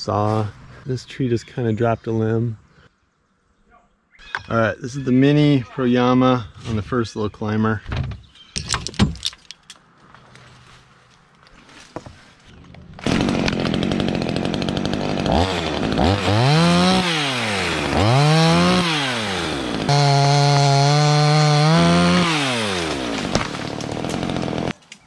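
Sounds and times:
chainsaw revving and cutting: 13.0 - 24.8.

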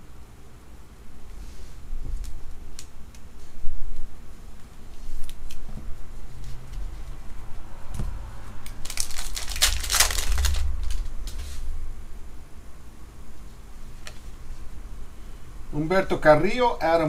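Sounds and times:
trading cards clicking: 8.7 - 11.0
foil pack tearing and crinkling: 8.7 - 11.4.

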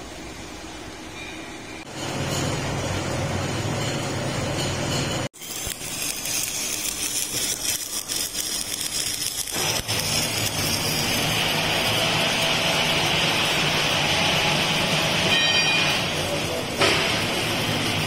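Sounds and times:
low workshop hum: 0.0 - 18.0
electric arc welding crackle: 5.3 - 18.0.

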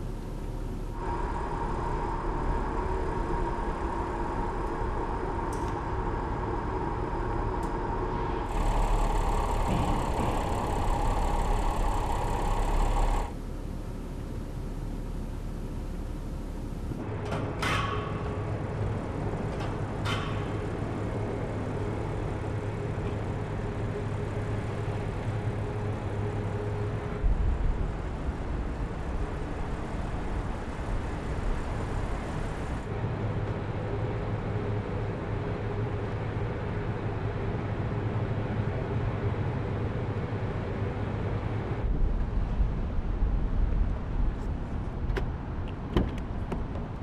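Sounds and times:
car engine hum: 0.0 - 17.1.

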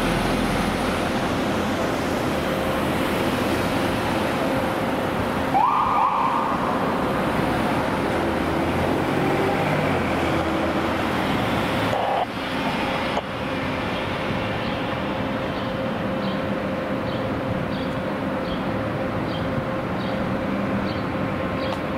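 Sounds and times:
city traffic noise: 0.0 - 21.9
siren whoop: 5.5 - 6.8.

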